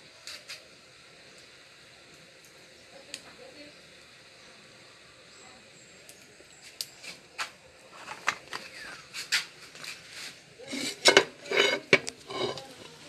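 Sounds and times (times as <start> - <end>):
metal clatter: 10.7 - 13.0.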